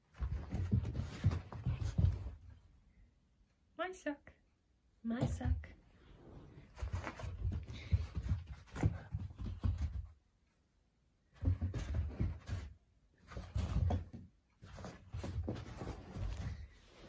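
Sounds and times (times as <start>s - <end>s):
puppy scuffling on carpet: 0.1s - 2.5s, 6.1s - 10.0s, 11.4s - 17.0s.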